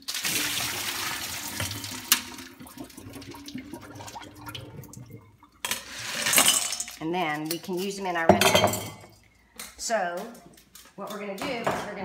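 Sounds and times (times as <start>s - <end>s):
water pouring into sink: 0.0s - 7.0s.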